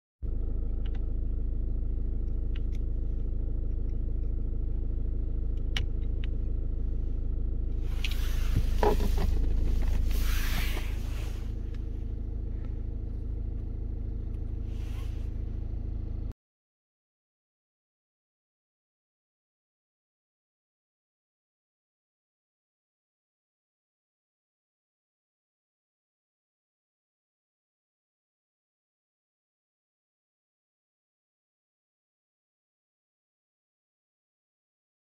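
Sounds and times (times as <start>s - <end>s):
car engine idling: 0.2s - 16.3s
rustling and clatter of handling: 7.9s - 11.4s.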